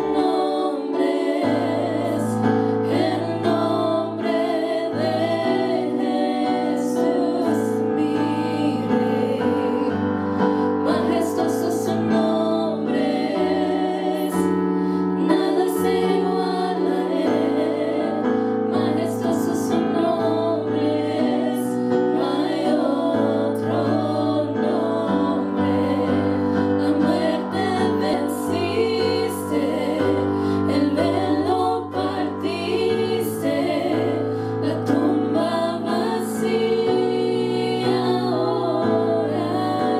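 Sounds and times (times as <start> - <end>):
women singing gospel in harmony: 0.0 - 39.9.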